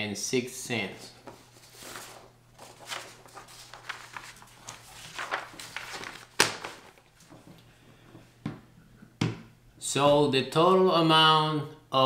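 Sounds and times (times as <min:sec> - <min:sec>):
paper rustling and crackling: 0:01.2 - 0:07.5.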